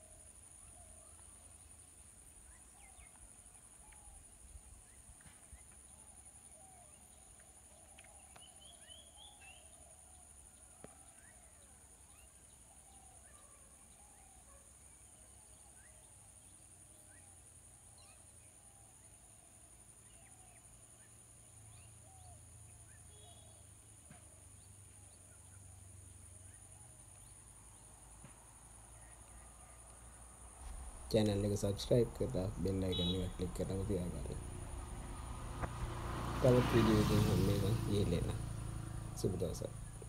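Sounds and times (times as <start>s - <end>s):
higher bird warble: 30.6s - 38.4s.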